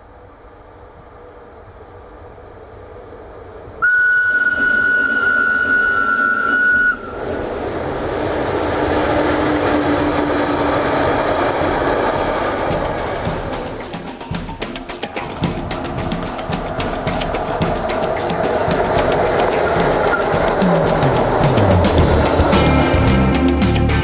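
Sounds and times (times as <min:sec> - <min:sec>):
train rumble: 0:00.0 - 0:24.0
freight wagons rushing past: 0:03.0 - 0:24.0
locomotive horn blast: 0:03.8 - 0:07.2.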